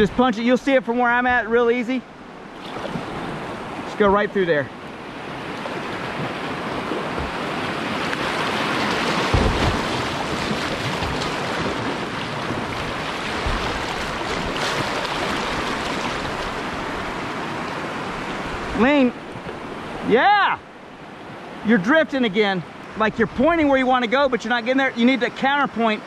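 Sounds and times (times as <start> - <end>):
river water rushing: 0.0 - 26.0
low thumps: 7.0 - 7.7, 9.0 - 16.6.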